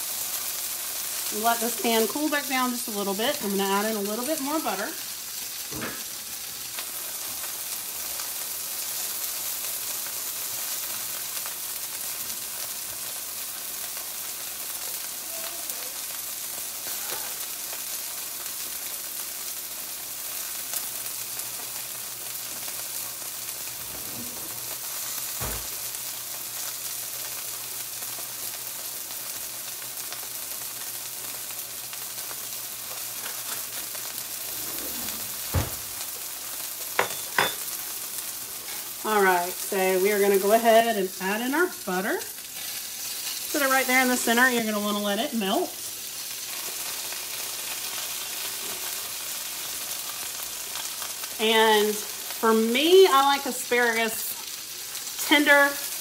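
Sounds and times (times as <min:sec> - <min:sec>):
chicken sizzling in a skillet: 0:00.0 - 0:56.0.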